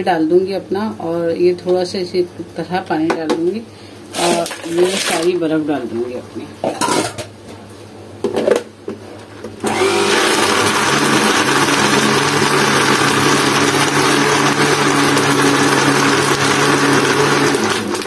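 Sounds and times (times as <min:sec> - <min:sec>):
blender running with ice: 0:04.1 - 0:05.3, 0:09.6 - 0:18.0.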